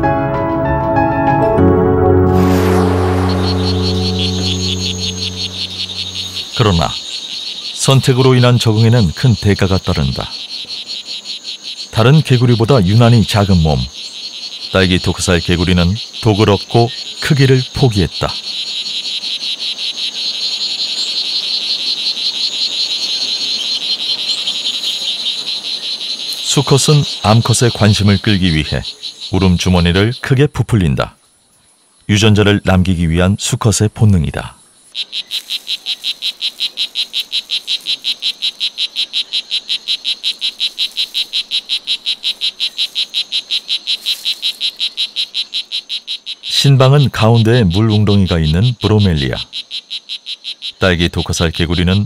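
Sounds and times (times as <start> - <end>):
frog buzzing chirps: 2.3 - 30.6, 34.3 - 52.0.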